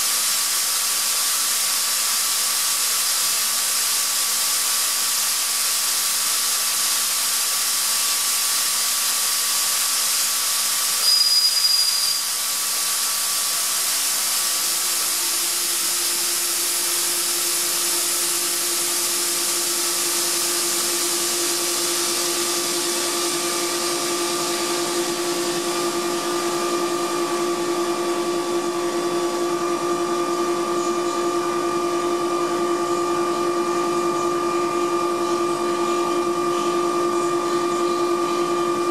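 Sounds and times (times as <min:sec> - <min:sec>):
air compressor running: 0:00.0 - 0:38.9
high whistle: 0:11.0 - 0:12.5.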